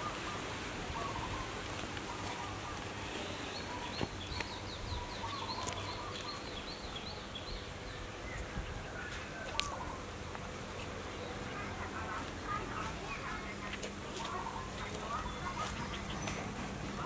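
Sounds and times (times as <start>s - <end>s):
bird chirping: 3.1s - 10.0s, 14.3s - 17.0s.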